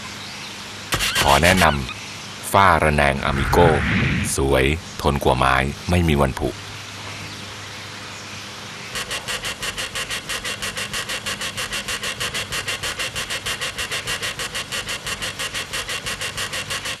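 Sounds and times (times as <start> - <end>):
rapid high squeaks: 0.9 - 2.0, 9.0 - 17.0.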